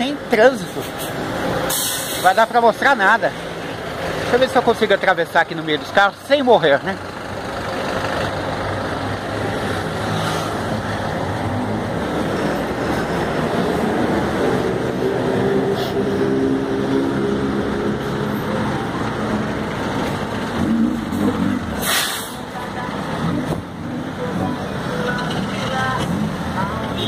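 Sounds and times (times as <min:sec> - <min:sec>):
bus engine hum: 0:00.0 - 0:27.0
traffic engines idling: 0:00.0 - 0:27.0.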